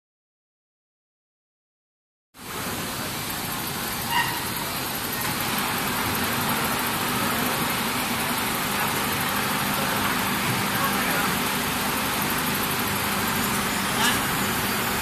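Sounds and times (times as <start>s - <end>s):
machinery hum and hiss: 2.4s - 15.0s
short high beep: 4.1s - 4.6s.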